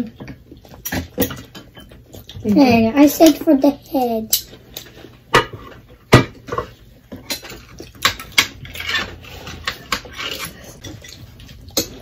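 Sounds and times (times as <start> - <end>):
utensils clinking against plates: 6.4 - 12.0.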